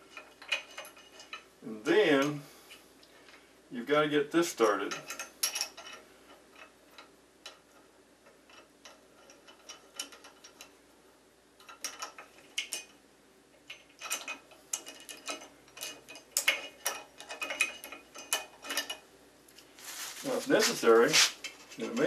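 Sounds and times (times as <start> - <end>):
metallic clicks of bolt turning: 4.9 - 10.8, 11.6 - 13.0, 13.6 - 19.0.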